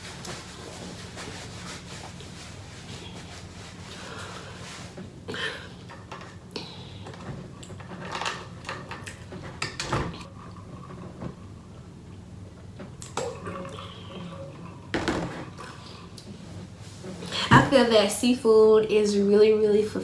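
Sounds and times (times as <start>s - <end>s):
low steady hum: 0.0s - 20.0s
water gulping: 12.4s - 16.3s.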